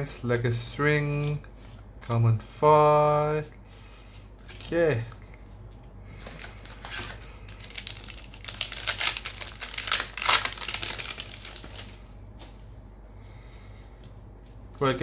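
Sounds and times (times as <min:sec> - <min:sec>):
foil wrapper crinkling: 0:06.3 - 0:12.6.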